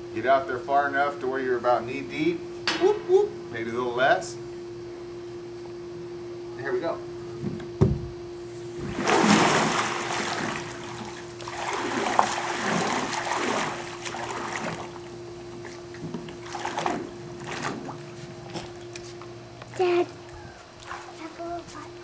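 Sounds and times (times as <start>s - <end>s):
steady low hum: 0.0s - 22.0s
pool water splashing: 8.7s - 22.0s.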